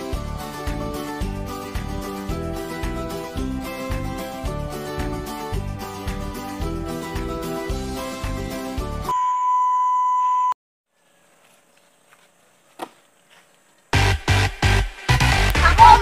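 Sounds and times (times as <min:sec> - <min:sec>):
background music with beat: 0:00.0 - 0:09.1, 0:14.0 - 0:16.0
steady high beep: 0:09.1 - 0:10.6
loud electronic dance music: 0:14.0 - 0:16.0.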